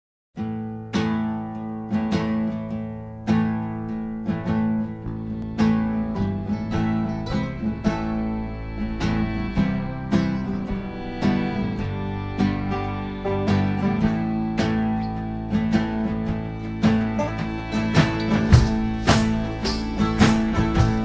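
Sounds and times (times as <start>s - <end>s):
strummed acoustic guitar: 0.4s - 21.0s
held low notes: 2.8s - 21.0s.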